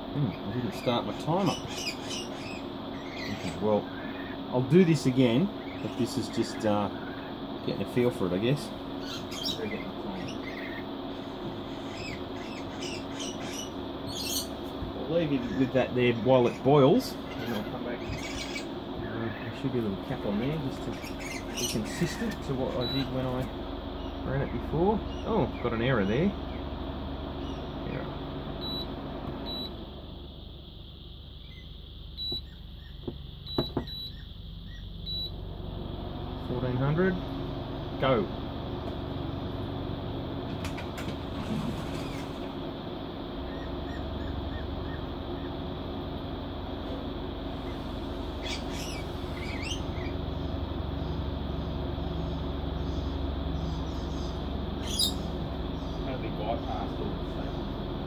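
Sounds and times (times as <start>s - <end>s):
birds chirping: 0.0s - 58.0s
steady low hum: 0.0s - 58.0s.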